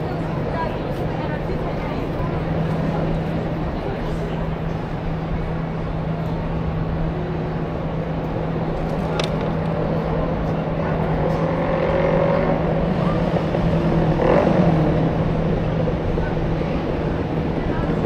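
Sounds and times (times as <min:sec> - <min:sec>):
faint voices of passers-by: 0:00.0 - 0:18.0
traffic noise: 0:00.0 - 0:18.0.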